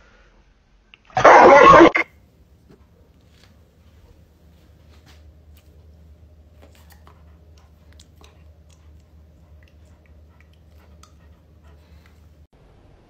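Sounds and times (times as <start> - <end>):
low steady hum: 0.1 - 13.0
dog teeth clicks and mouth smacks: 6.6 - 11.3.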